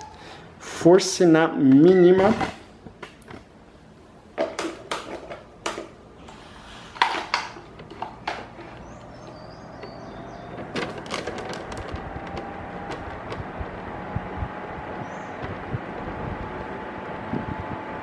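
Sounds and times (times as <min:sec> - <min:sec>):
fan airflow noise: 0:00.0 - 0:18.0
fan motor whine: 0:05.5 - 0:18.0
clicks and knocks: 0:07.0 - 0:13.6.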